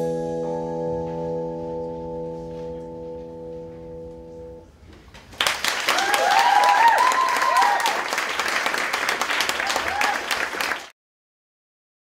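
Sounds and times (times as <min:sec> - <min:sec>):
audience applause: 0:05.4 - 0:10.9
high whooping cheers: 0:05.8 - 0:08.2, 0:09.4 - 0:10.8.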